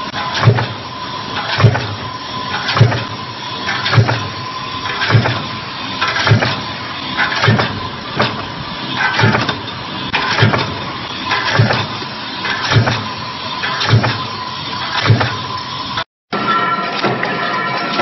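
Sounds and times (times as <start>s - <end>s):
high machine whine: 0.0s - 18.0s
punch press striking: 0.1s - 0.8s, 1.4s - 10.8s, 11.4s - 12.0s, 12.6s - 13.1s, 13.7s - 15.5s.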